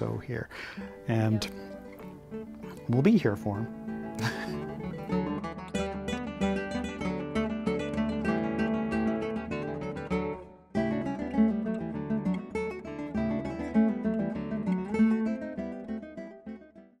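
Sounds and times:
instrumental music with strummed strings: 0:00.0 - 0:17.0.

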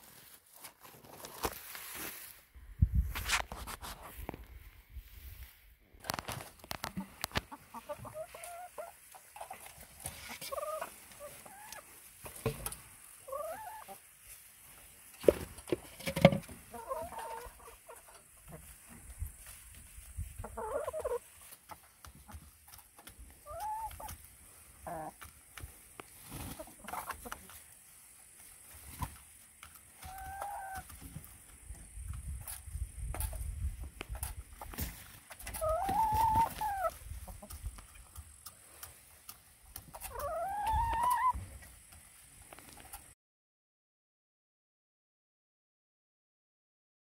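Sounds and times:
hens clucking: 0:06.0 - 0:43.1.

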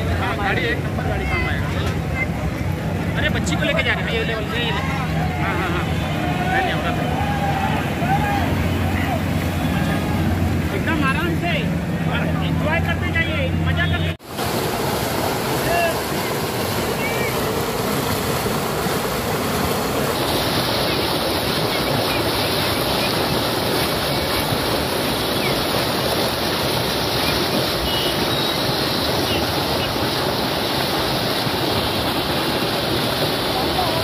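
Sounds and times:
floodwater gushing from a drain: 0:14.2 - 0:34.0.

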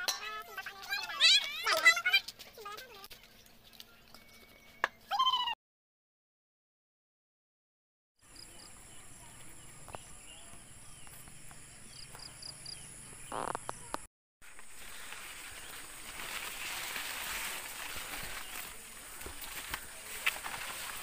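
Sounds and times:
insect trill: 0:08.2 - 0:14.0
bird chirps: 0:08.3 - 0:14.1
rustling of corn leaves: 0:14.4 - 0:21.0.

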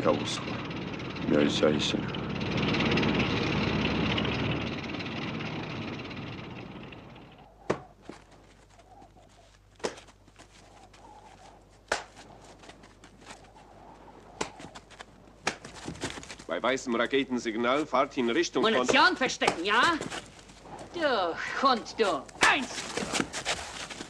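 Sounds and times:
engine rumble: 0:00.0 - 0:08.8.

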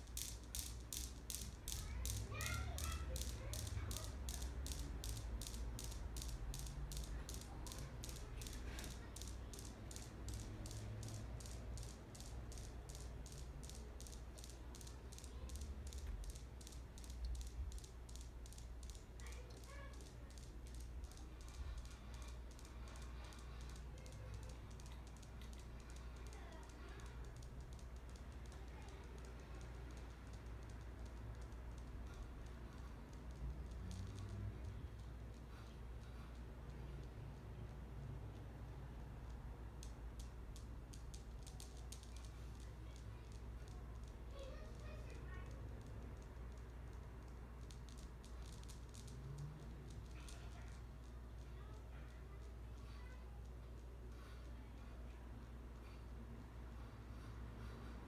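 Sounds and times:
rapid light clicking: 0:00.0 - 0:58.0
steady low hum: 0:00.0 - 0:58.0.

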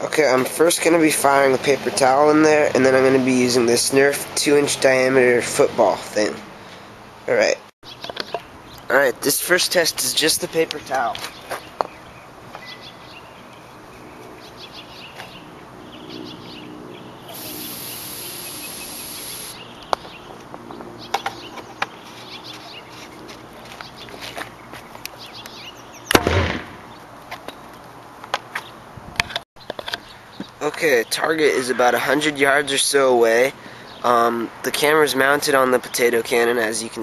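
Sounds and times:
aerosol spray hissing: 0:17.3 - 0:19.6
potato cannon firing whoomp: 0:26.1 - 0:26.9.

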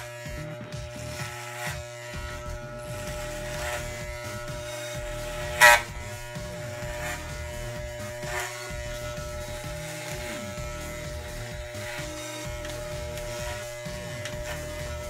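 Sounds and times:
electric hair clippers buzzing: 0:00.0 - 0:15.0.

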